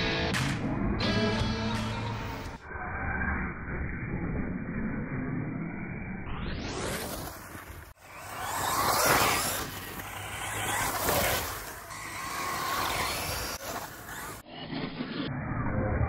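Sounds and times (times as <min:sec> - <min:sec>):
tyre noise on dirt: 0:06.7 - 0:14.4
electric motor whine: 0:07.4 - 0:14.5.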